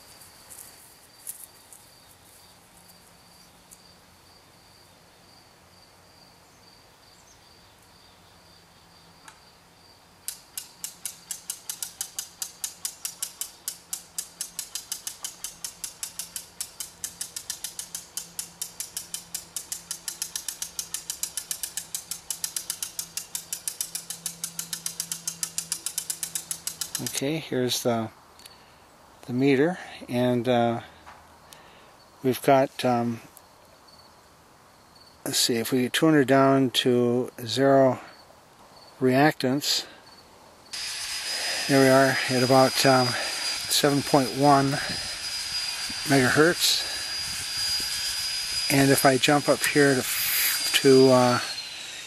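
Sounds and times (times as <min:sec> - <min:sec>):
rapid mechanical clicking: 0:10.3 - 0:27.2
faint high whine: 0:40.7 - 0:52.0.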